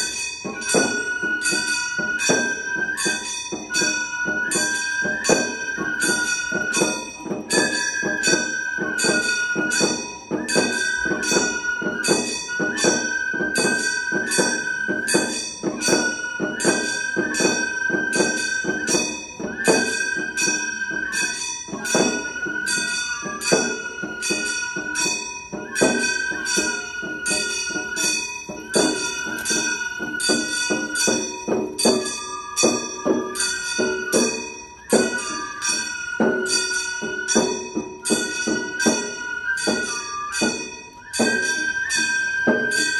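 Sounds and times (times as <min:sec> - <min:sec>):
bamboo flute long notes: 0:00.0 - 0:42.9
small hand gongs ringing: 0:20.4 - 0:42.0.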